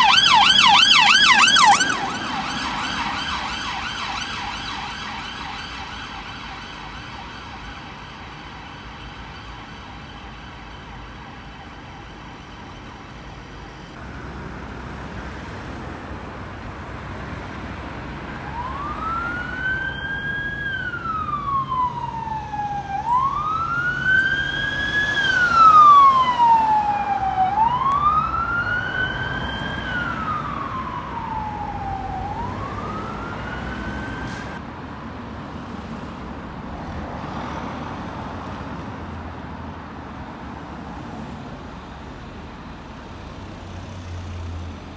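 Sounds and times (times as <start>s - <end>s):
fast-cycling police siren: 0.0s - 16.0s, 17.5s - 34.6s
slow wailing police siren: 0.0s - 34.6s
city traffic: 0.0s - 44.9s.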